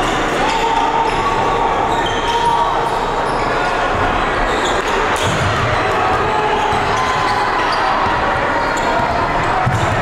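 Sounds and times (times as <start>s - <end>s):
gym crowd hum: 0.0s - 10.0s
basketball dribbling thuds: 9.0s - 10.0s.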